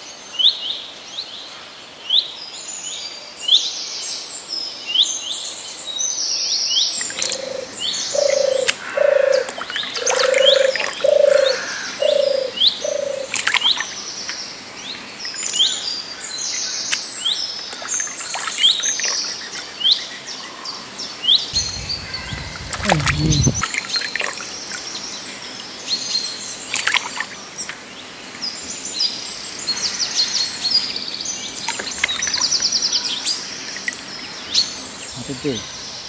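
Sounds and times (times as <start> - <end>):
birds chirping: 6.7 - 36.0
low bird calls: 6.9 - 36.0
hands splashing in muddy water: 7.0 - 7.8, 8.6 - 12.2, 13.2 - 16.1, 16.8 - 19.9, 21.6 - 25.6, 26.6 - 27.9, 31.4 - 34.3.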